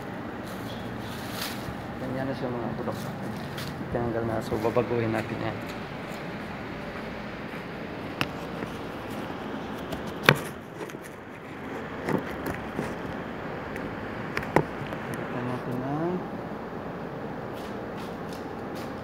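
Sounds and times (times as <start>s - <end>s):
room noise: 0.0s - 19.0s
sharp knocks and clicks: 12.0s - 15.2s.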